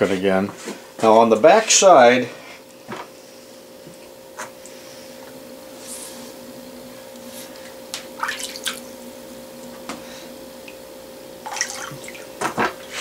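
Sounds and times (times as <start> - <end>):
faint steady hum: 0.0 - 13.0
water splashing in a plastic tub: 8.2 - 8.9, 11.4 - 12.8.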